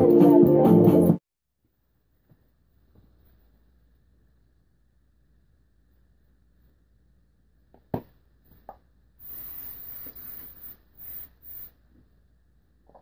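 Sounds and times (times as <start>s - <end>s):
hairspray hissing: 9.2s - 11.9s.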